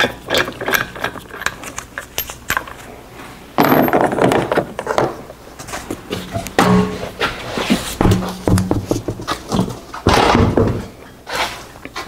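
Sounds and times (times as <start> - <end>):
tools clinking: 0.3 - 2.9.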